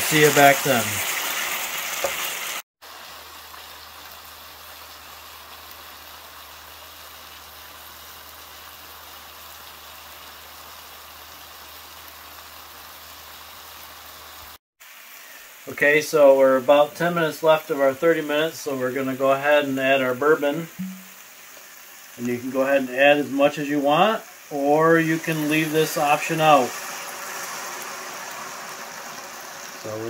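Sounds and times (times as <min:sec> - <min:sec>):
onions simmering and sizzling: 0:00.0 - 0:30.0
spoon stirring onions in skillet: 0:20.8 - 0:22.4.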